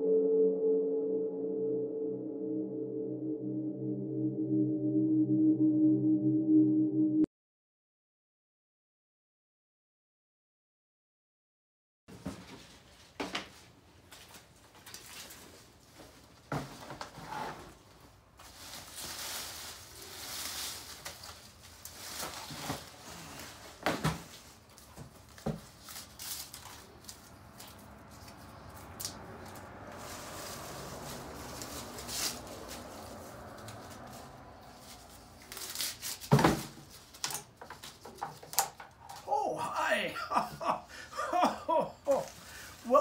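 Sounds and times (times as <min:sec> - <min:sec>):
leaves rustling: 0:18.4 - 0:23.7, 0:25.7 - 0:36.3.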